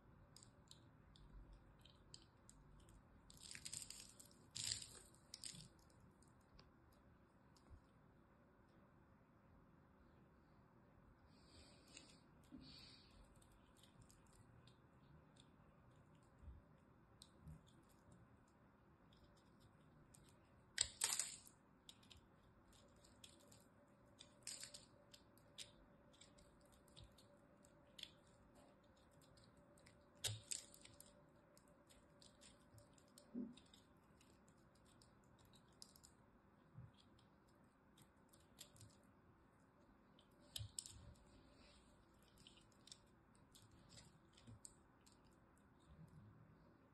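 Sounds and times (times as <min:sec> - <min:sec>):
knife cutting crumbly soap: 0:00.3 - 0:06.7, 0:19.0 - 0:36.0.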